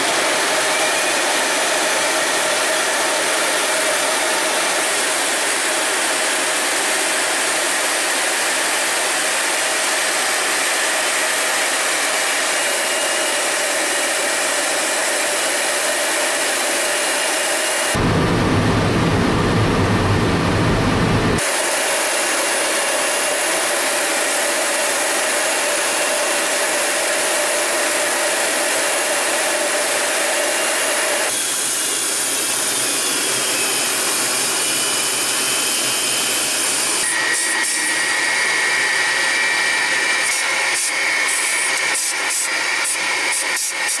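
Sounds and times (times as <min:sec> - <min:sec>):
jet engine rush: 0:10.6 - 0:23.8
steady high whine: 0:11.3 - 0:22.6.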